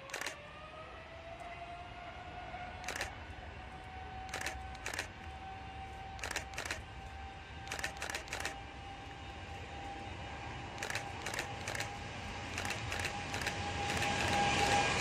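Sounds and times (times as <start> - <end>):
sharp short clicks: 0.0 - 0.4, 2.8 - 3.2, 4.3 - 5.4, 6.2 - 6.9, 7.6 - 8.6, 10.8 - 15.0
distant jet engines whining: 0.0 - 15.0.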